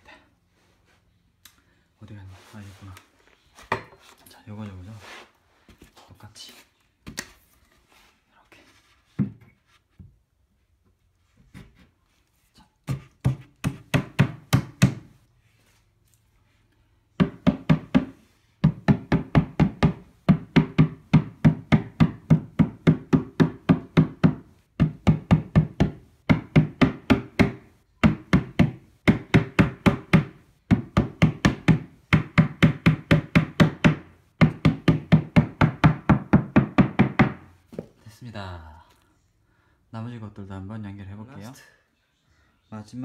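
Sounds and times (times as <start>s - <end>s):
mallet striking wooden panel: 17.2s - 37.5s.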